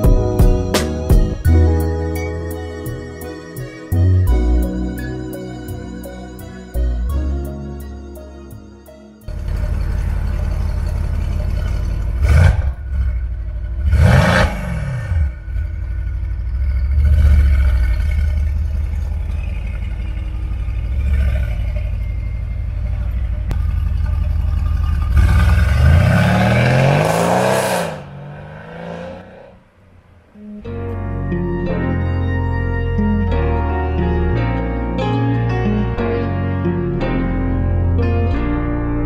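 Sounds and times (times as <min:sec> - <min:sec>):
car engine idling and revving: 0:00.0 - 0:31.1.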